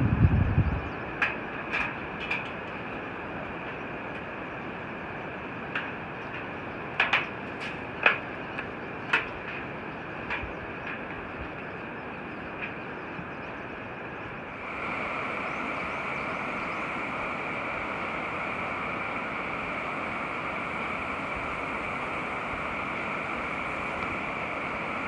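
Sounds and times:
footsteps clanking on steel deck: 5.7s - 11.8s
river water rushing: 14.5s - 25.0s.

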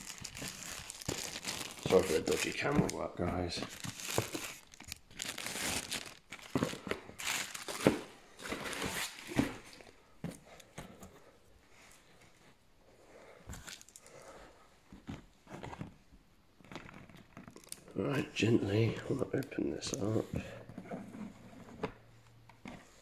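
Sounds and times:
plastic wrapping crinkling and tearing: 0.0s - 9.8s, 13.5s - 14.1s, 16.6s - 20.0s.

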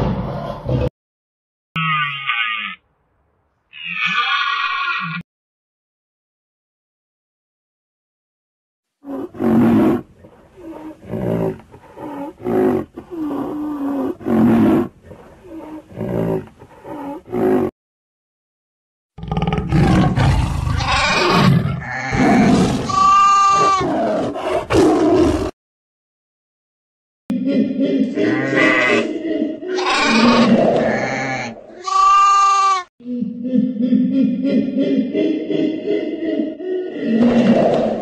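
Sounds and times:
animal roaring and growling: 0.0s - 0.9s, 9.0s - 17.7s, 19.2s - 25.6s, 27.3s - 31.6s, 35.2s - 38.0s.

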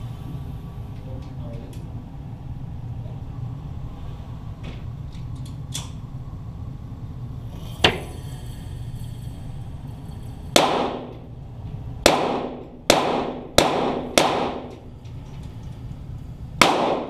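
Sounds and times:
steady low hum: 0.0s - 17.0s
pistol shots ringing indoors: 10.6s - 11.3s, 12.0s - 14.9s, 16.6s - 17.0s.

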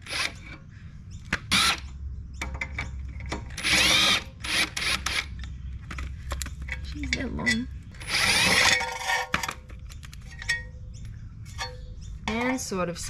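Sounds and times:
cordless driver spinning: 3.5s - 5.4s, 8.0s - 9.4s.

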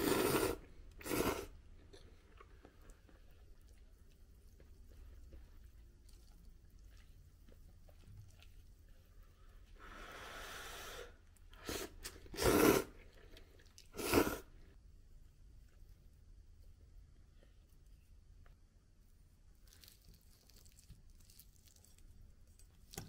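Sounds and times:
person slurping noodles: 0.0s - 1.6s, 9.9s - 14.6s
person chewing noodles: 0.0s - 9.8s.

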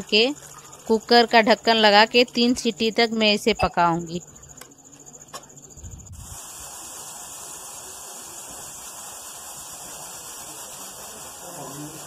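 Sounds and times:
pressure cooker hissing whistle: 6.2s - 12.0s.

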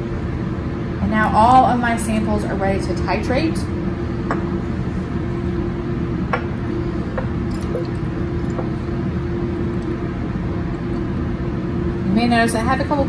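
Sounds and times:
low hum: 3.6s - 12.8s.

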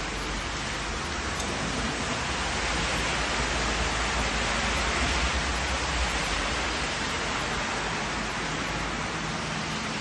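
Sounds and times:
heavy rain on pavement: 0.0s - 10.0s.

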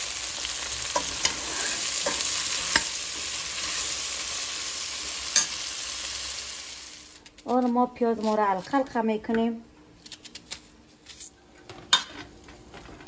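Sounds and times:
okra sizzling in oil: 0.0s - 7.5s.

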